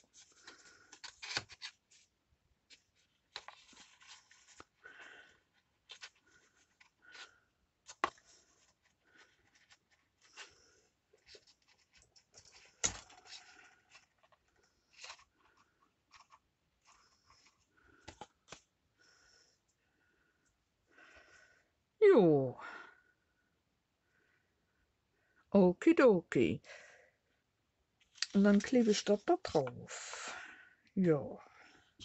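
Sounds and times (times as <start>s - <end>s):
paper rustling and scraping: 0.0s - 2.1s, 2.7s - 7.3s, 11.2s - 18.7s, 28.1s - 29.9s.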